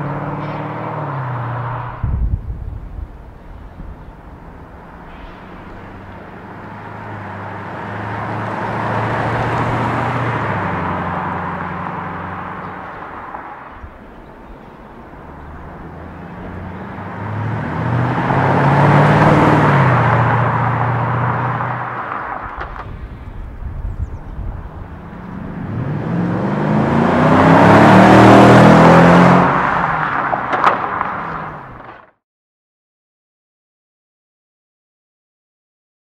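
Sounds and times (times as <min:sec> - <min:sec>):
car exhaust drive-by: 0:00.0 - 0:14.0.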